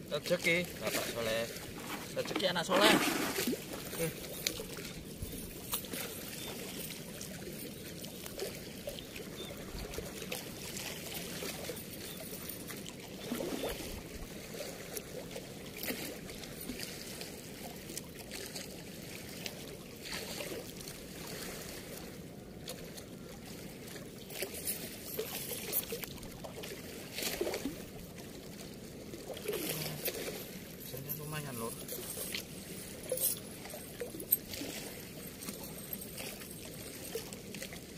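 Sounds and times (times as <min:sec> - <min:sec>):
light clinks and rustles of net: 0:00.4 - 0:09.0, 0:09.8 - 0:13.9, 0:24.3 - 0:26.2, 0:29.4 - 0:37.9
water rushing over a weir: 0:00.5 - 0:05.0.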